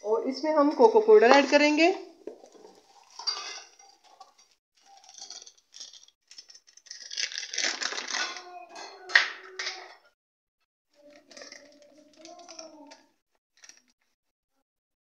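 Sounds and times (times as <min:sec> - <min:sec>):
plastic sachet crinkling: 0:04.8 - 0:08.6, 0:11.0 - 0:13.0.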